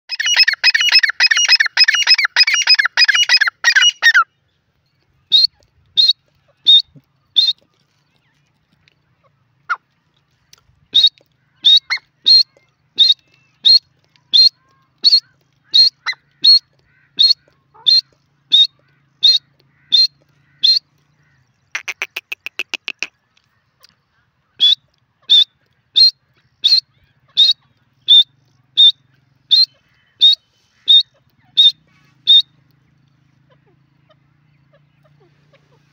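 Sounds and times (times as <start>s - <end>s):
francolin calling: 0.1s - 4.3s, 10.9s - 23.1s, 24.6s - 35.9s.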